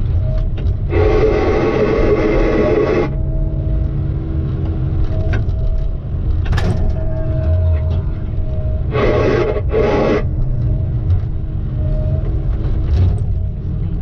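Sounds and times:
heavy vehicle engine rumbling: 0:00.0 - 0:14.0
faint steady hum: 0:00.8 - 0:04.2, 0:06.8 - 0:12.2.

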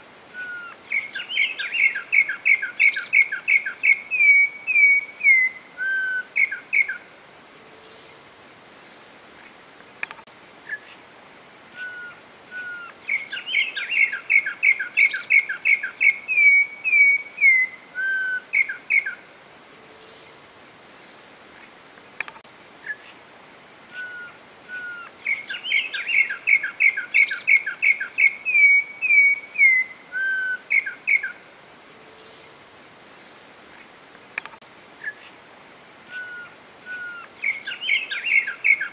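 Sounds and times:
bird whistling song: 0:00.3 - 0:07.0, 0:11.8 - 0:19.2, 0:23.9 - 0:31.4, 0:36.1 - 0:38.9.

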